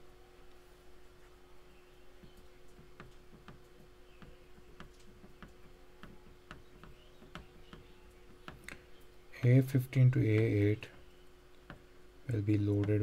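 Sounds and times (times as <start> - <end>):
steady low hum: 0.0 - 13.0
stylus tapping on tablet screen: 2.2 - 8.8.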